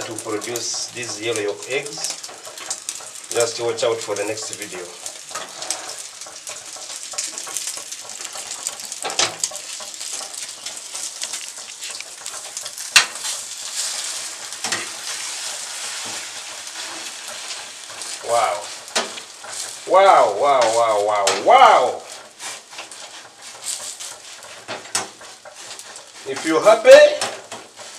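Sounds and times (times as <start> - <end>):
person speaking: 0.0 - 2.2, 18.2 - 18.7, 19.8 - 22.1, 26.2 - 27.3
egg sizzling in frying pan: 0.0 - 27.9
metal utensils scraping a pan: 0.0 - 27.9.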